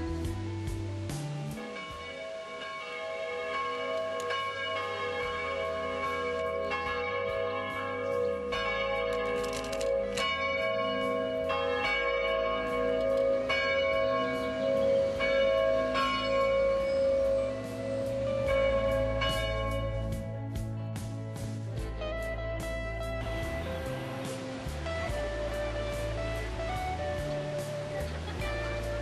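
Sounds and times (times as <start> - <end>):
church bells ringing: 1.3 - 20.4.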